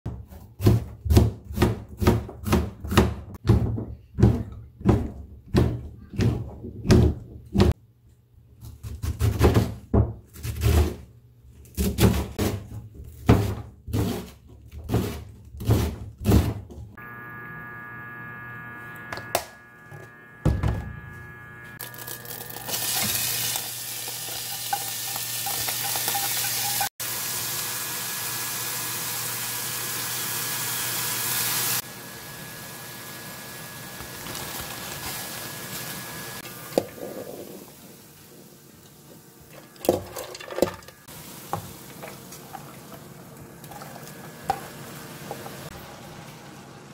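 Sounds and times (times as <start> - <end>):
onion sizzling in pot: 19.7 - 46.9.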